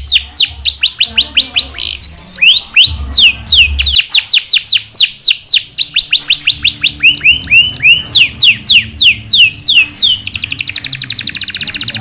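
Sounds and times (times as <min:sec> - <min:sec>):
canary singing: 0:00.0 - 0:12.0.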